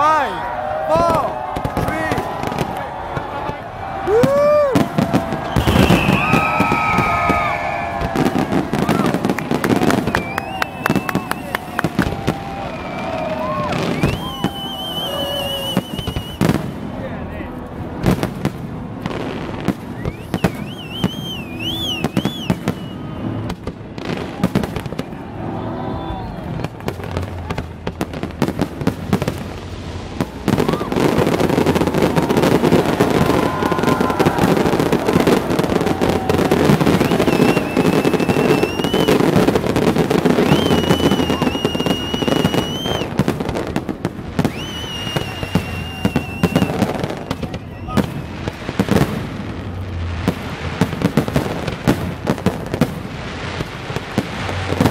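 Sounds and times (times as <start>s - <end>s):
fireworks bangs and crackling: 0.0s - 54.9s
high firework whistles: 4.0s - 16.9s, 19.7s - 27.3s, 30.2s - 49.1s.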